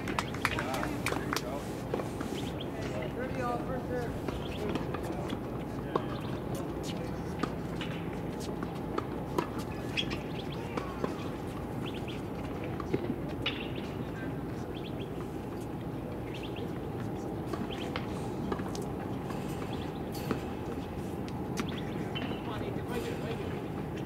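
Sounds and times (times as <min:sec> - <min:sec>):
low background hum: 0:00.0 - 0:24.0
small birds chirping: 0:02.2 - 0:03.4, 0:04.2 - 0:04.9, 0:06.0 - 0:07.3, 0:09.6 - 0:12.4, 0:13.4 - 0:22.9.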